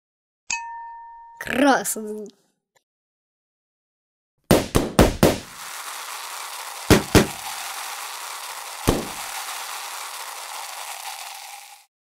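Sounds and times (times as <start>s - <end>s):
balloons popping: 4.5s - 11.4s
steady hiss: 5.5s - 11.9s.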